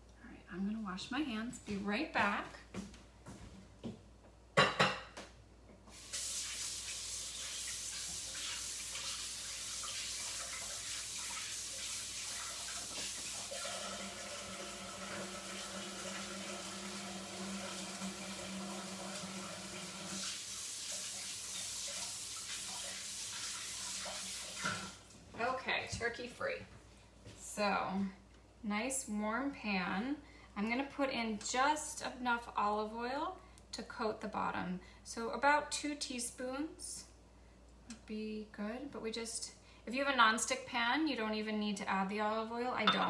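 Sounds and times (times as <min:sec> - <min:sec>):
tap running into a sink: 0:21.0 - 0:25.0.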